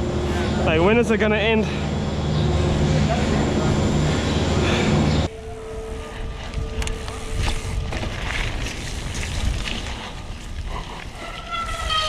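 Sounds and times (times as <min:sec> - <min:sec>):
rumble of tyres and wind: 0:00.0 - 0:12.0.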